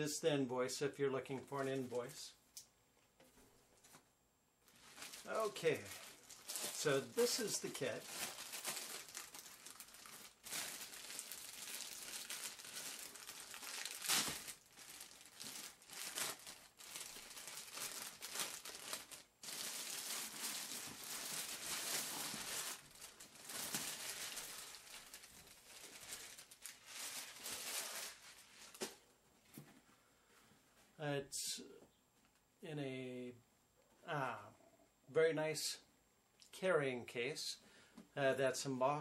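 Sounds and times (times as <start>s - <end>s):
plastic bag crinkling: 4.6s - 29.0s.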